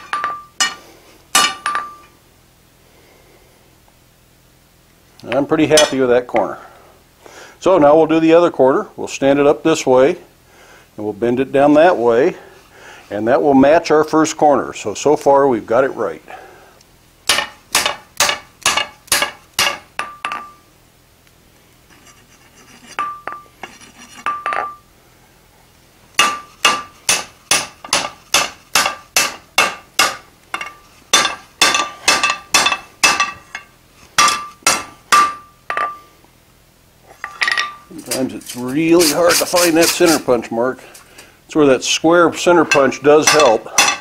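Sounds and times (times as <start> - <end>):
anvil ringing: 0.0 - 0.8, 1.4 - 2.1, 17.3 - 20.6, 26.2 - 36.0, 42.7 - 44.0
hammer striking hot metal on anvil: 0.0 - 0.8, 1.4 - 2.1, 17.3 - 20.6, 23.0 - 23.5, 26.2 - 36.0, 42.7 - 44.0.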